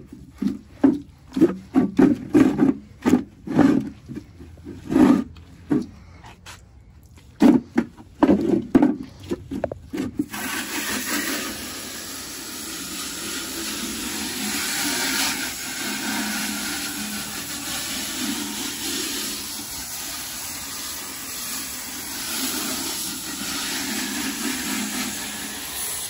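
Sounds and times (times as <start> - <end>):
pressure washer spraying water: 10.2 - 26.0.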